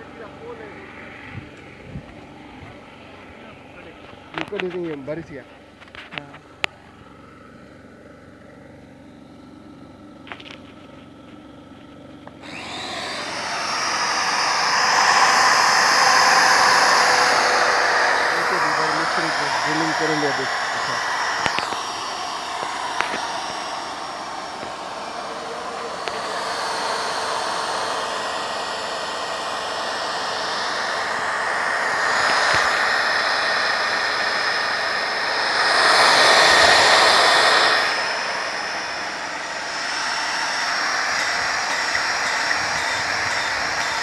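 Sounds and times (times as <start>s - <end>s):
electric drill whining: 10.0s - 44.0s.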